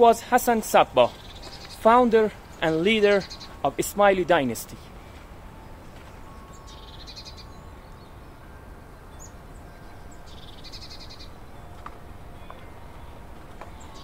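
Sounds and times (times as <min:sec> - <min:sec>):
low background hum: 0:00.0 - 0:14.0
high bird chirps: 0:01.1 - 0:03.6, 0:05.6 - 0:14.0
bird trilling: 0:01.1 - 0:03.7, 0:05.6 - 0:08.5, 0:09.1 - 0:14.0.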